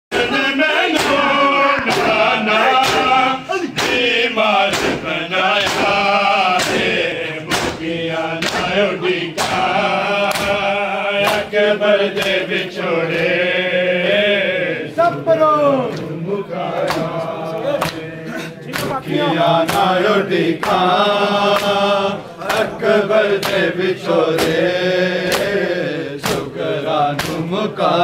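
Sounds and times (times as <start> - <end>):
men chanting in unison: 0.1 - 28.0
hands slapping chests: 0.8 - 12.5, 16.8 - 18.1, 18.7 - 26.5, 27.1 - 27.5.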